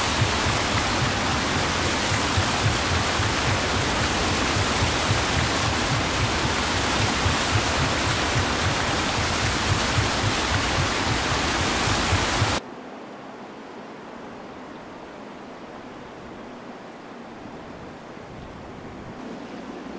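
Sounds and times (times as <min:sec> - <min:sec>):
outdoor hiss: 0:00.0 - 0:12.6
water splashing in stream: 0:00.0 - 0:12.6.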